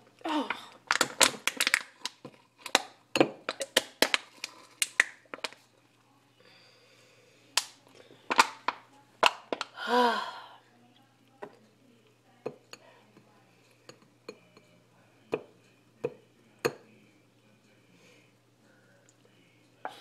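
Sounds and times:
aluminium can crackling and clicking: 0.9 - 5.6.

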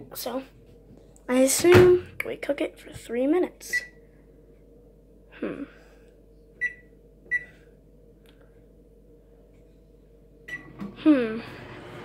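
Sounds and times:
microwave keypad beeps: 6.6 - 7.5.

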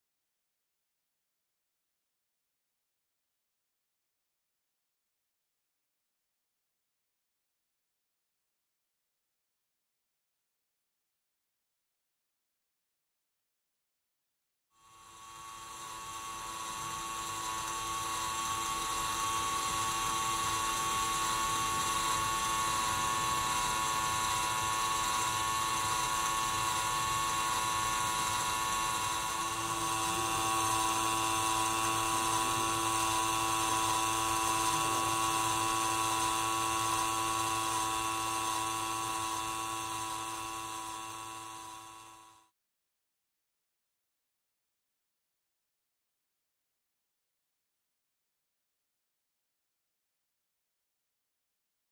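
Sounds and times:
small electric motor whining: 14.8 - 42.5
toy gear train turning: 14.8 - 42.5.

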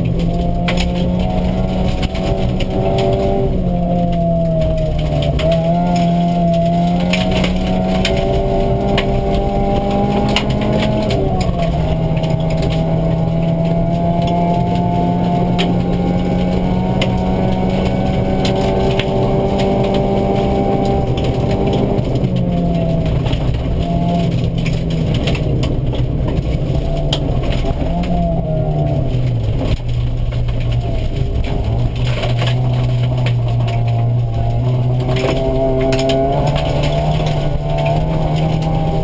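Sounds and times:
car engine revving: 0.0 - 39.0
gravel ticking against underbody: 0.0 - 39.0.

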